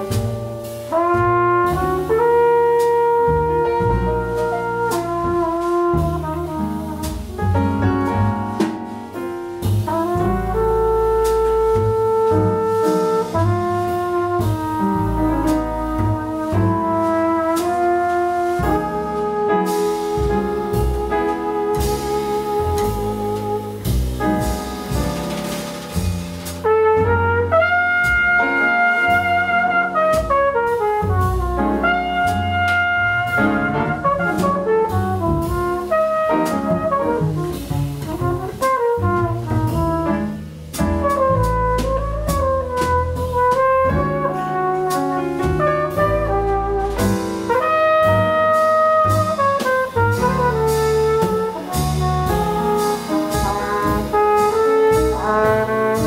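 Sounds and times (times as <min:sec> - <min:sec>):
flugelhorn melody: 0:00.0 - 0:08.3, 0:09.8 - 0:24.6, 0:26.5 - 0:56.0
double bass: 0:00.0 - 0:56.0
drum kit with cymbals: 0:00.0 - 0:56.0
piano: 0:00.0 - 0:56.0.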